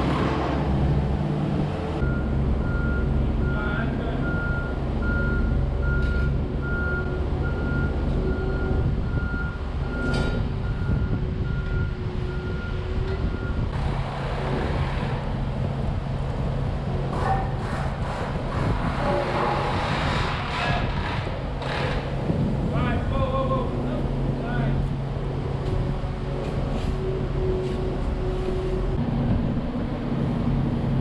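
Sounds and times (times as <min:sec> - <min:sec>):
diesel engine running: 0:00.0 - 0:31.0
backup alarm beeping: 0:02.0 - 0:13.6.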